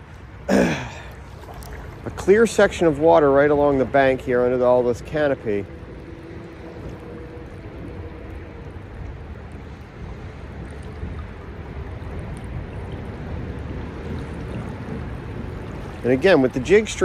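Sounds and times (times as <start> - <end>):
stream flowing: 0.0 - 17.0
low rumble: 3.7 - 16.1.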